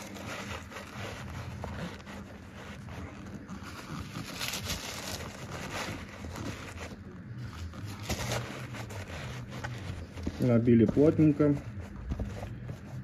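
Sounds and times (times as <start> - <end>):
paper crumpling and rustling: 0.0 - 13.0.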